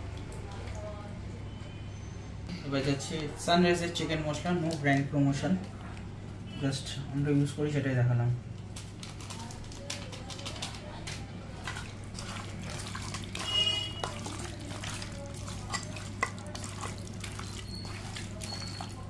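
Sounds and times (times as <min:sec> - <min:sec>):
meat clicking against metal bowl: 0:08.8 - 0:19.0
hand squelching meat in marinade: 0:11.5 - 0:19.0.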